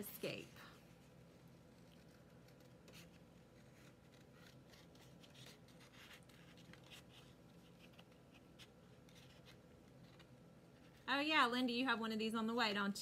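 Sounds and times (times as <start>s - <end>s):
paper rustling: 0.8s - 11.1s.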